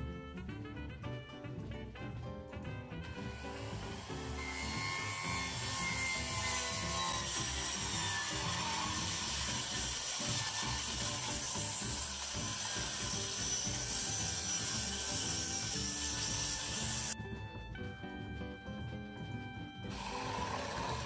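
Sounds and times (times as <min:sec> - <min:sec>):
reciprocating saw cutting wood: 0:03.0 - 0:17.2, 0:19.9 - 0:21.0.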